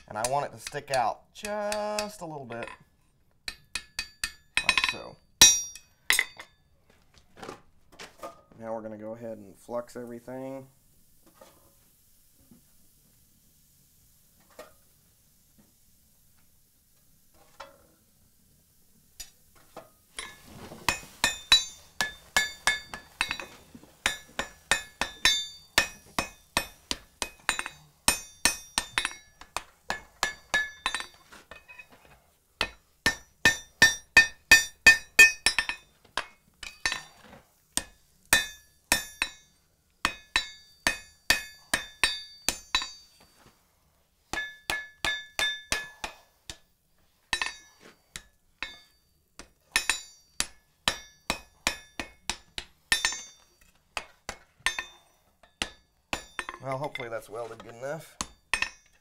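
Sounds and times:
hammer striking iron on anvil: 0:00.0 - 0:02.8, 0:03.4 - 0:06.6, 0:20.2 - 0:31.9, 0:32.6 - 0:37.1, 0:37.8 - 0:43.5, 0:44.3 - 0:46.7, 0:47.3 - 0:59.0.

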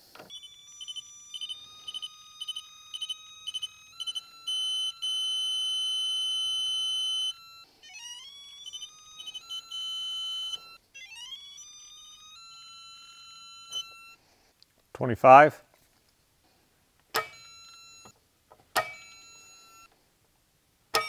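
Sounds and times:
long steady beep: 0:00.3 - 0:10.8, 0:11.6 - 0:14.2, 0:17.2 - 0:18.2, 0:18.8 - 0:19.9.

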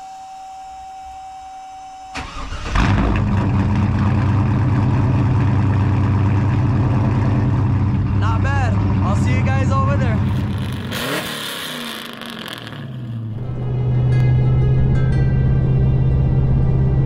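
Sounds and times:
steady high whine: 0:00.0 - 0:02.4
car engine idling loudly: 0:03.2 - 0:13.4
starter motor cranking: 0:10.2 - 0:13.3.

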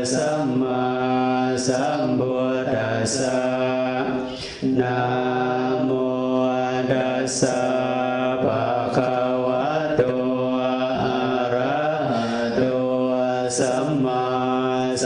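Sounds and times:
monotone chanting: 0:00.0 - 0:15.0.

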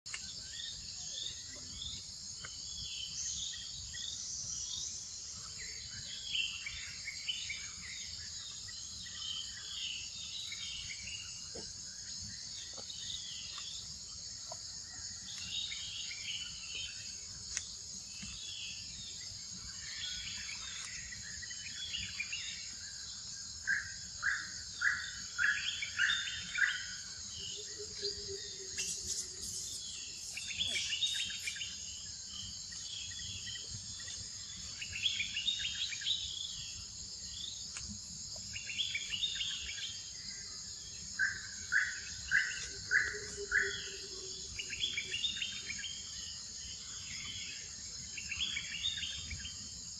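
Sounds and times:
insects buzzing: 0:00.1 - 0:49.9
birds chirping: 0:24.9 - 0:36.0.

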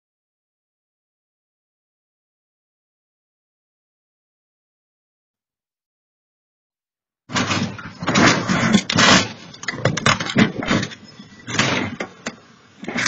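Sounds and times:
vehicle crash bangs and crunches: 0:07.3 - 0:12.2.

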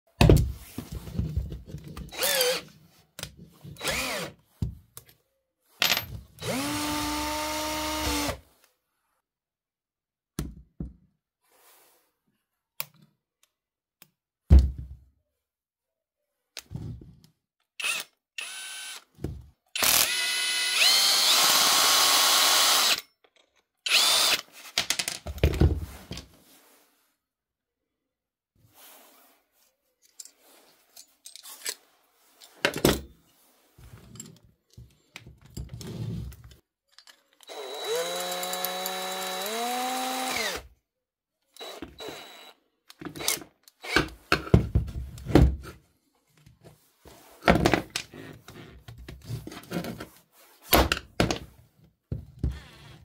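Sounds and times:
cordless drill motor whining: 0:02.1 - 0:02.6, 0:03.8 - 0:04.3, 0:06.4 - 0:08.4, 0:17.8 - 0:19.1, 0:19.8 - 0:23.0, 0:23.9 - 0:24.4, 0:37.4 - 0:40.6, 0:41.6 - 0:42.6.

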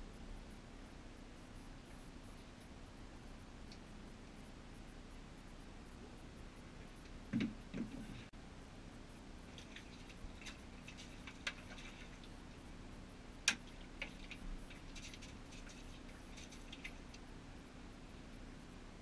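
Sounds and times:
faint low hum: 0:00.0 - 0:19.0
dull thumps: 0:07.3 - 0:08.3.

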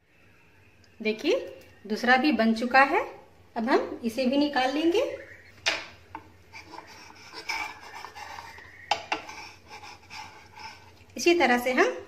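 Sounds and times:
spatula scraping frying pan: 0:06.4 - 0:11.1.

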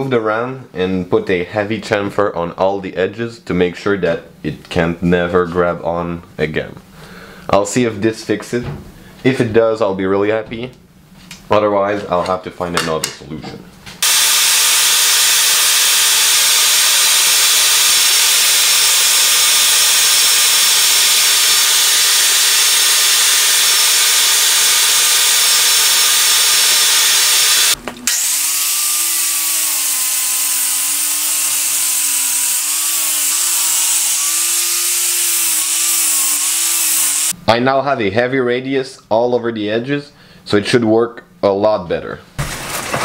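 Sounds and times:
angle grinder grinding steel: 0:14.0 - 0:37.3
band saw cutting plastic: 0:14.0 - 0:37.3.

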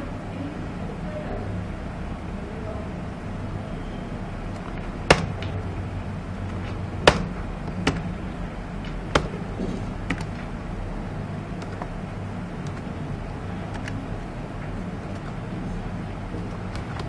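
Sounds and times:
keyboard and mouse clicks: 0:04.5 - 0:05.6, 0:06.4 - 0:08.2, 0:08.8 - 0:10.5, 0:11.6 - 0:12.0, 0:12.6 - 0:13.0, 0:13.6 - 0:14.1, 0:15.0 - 0:15.6, 0:16.4 - 0:17.0.

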